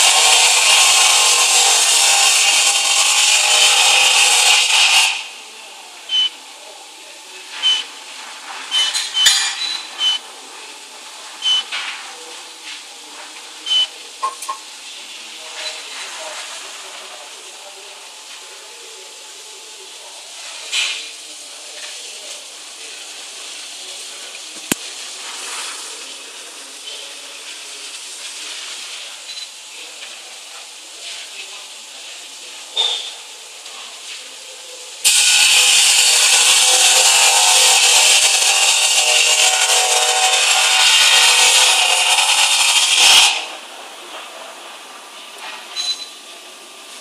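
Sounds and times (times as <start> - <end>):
loud steady gas hiss: 0.0 - 47.0.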